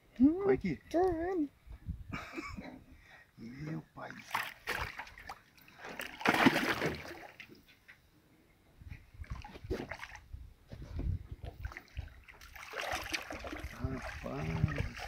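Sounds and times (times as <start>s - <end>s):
fish splashing in water: 4.3s - 7.5s, 11.6s - 15.0s.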